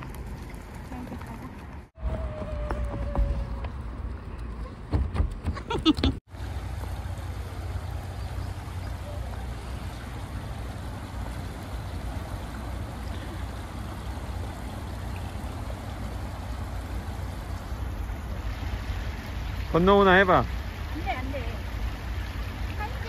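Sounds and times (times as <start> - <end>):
stream rushing over rocks: 6.3 - 23.0.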